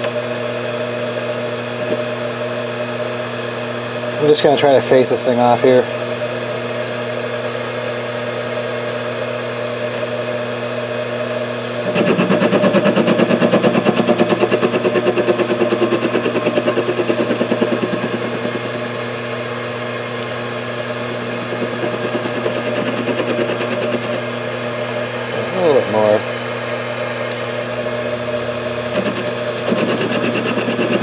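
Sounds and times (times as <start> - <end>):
lathe motor hum: 0.0 - 4.8, 11.1 - 31.0
lathe cutting chatter: 11.8 - 19.5, 21.1 - 24.3, 27.9 - 31.0.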